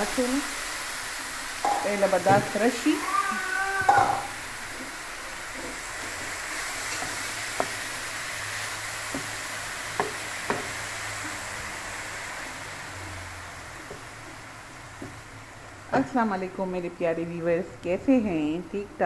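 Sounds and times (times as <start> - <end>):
leaves sizzling in hot oil: 0.0 - 19.0
spoon knocking against pan: 1.6 - 2.6, 3.8 - 4.3, 10.0 - 10.8.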